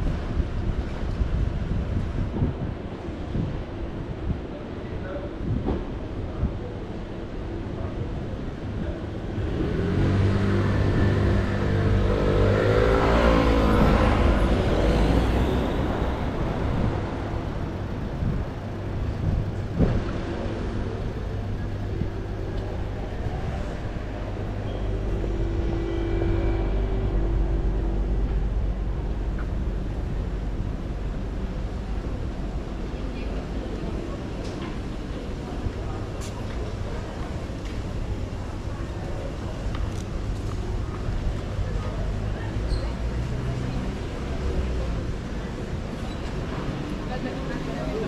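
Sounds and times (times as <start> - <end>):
steady engine hum: 0.0 - 48.0
street noise: 0.0 - 48.0
vehicle engine passing by: 9.3 - 18.4, 20.0 - 31.9.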